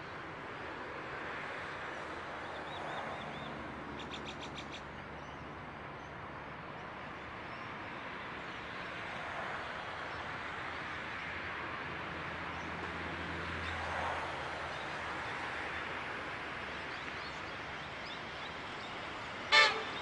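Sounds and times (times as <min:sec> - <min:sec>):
distant electric train rumble: 0:19.1 - 0:20.0.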